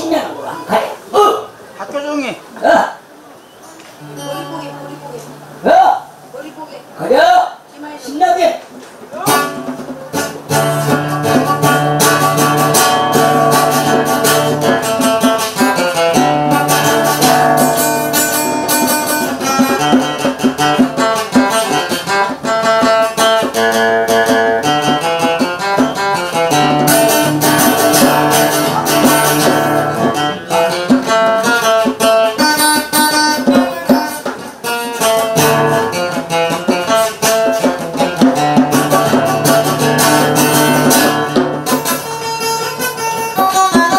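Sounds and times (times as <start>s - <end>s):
acoustic guitar: 2.5s - 7.7s, 8.5s - 43.9s
djembe hand drumming: 9.0s - 43.9s.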